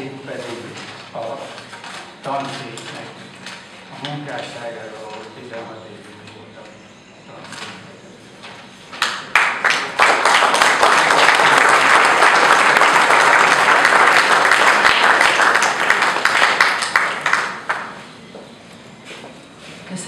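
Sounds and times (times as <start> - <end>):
audience applauding: 9.0 - 18.1.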